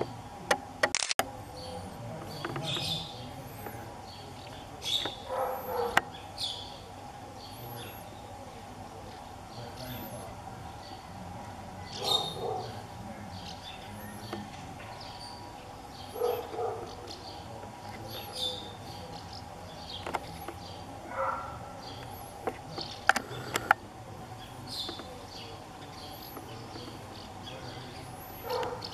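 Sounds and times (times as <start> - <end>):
sharp clicks: 0.0 - 1.3, 22.0 - 23.8
low background hum: 0.0 - 28.9
small birds chirping: 1.3 - 28.9.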